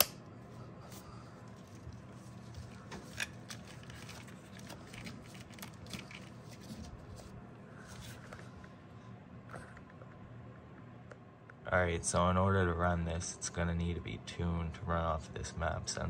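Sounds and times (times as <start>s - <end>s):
faint low hum: 0.0s - 16.0s
gloved hands rustling: 0.4s - 8.5s.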